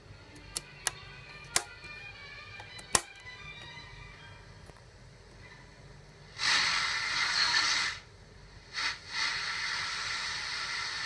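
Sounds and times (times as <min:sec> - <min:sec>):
radio static hiss: 0:06.2 - 0:11.0.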